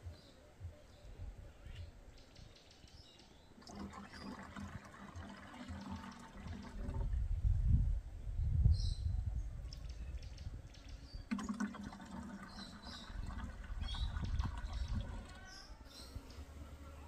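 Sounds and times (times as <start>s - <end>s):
water pouring into plastic can: 3.6s - 7.2s, 11.3s - 15.4s.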